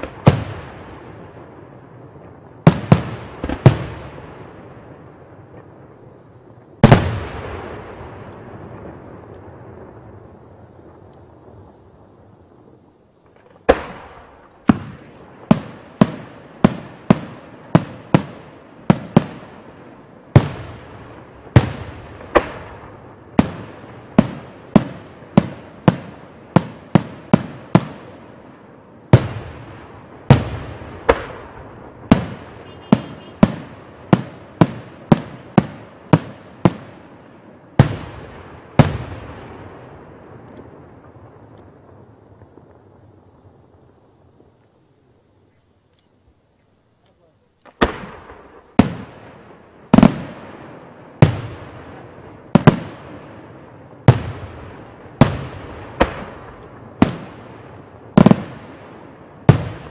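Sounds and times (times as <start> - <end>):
firework shells bursting: 30.3 - 36.9.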